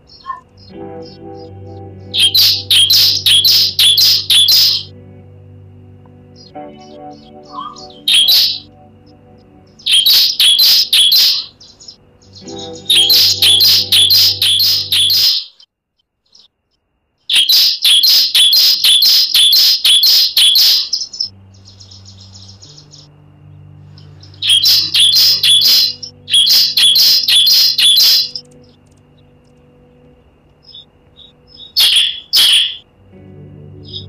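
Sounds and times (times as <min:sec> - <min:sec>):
bird chirping rapidly: 0:00.0 - 0:01.5, 0:02.1 - 0:04.9, 0:06.4 - 0:08.7, 0:09.7 - 0:16.6, 0:17.2 - 0:23.2, 0:24.2 - 0:29.4, 0:30.6 - 0:32.9
soft low music pad: 0:00.0 - 0:34.0.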